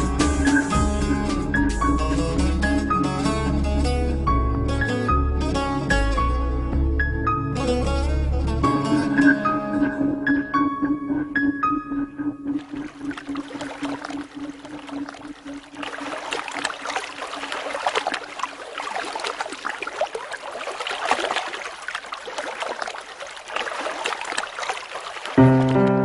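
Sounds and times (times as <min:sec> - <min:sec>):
water splashing and lapping: 0:12.4 - 0:26.0.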